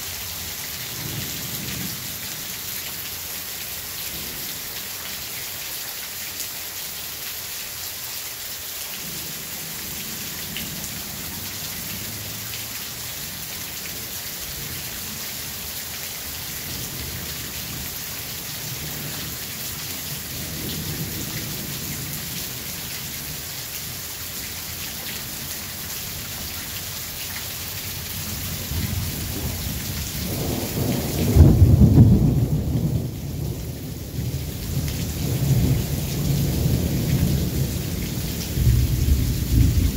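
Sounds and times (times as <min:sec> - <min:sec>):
steady rain falling: 0:00.0 - 0:39.9
thunder rumbling: 0:28.3 - 0:39.9.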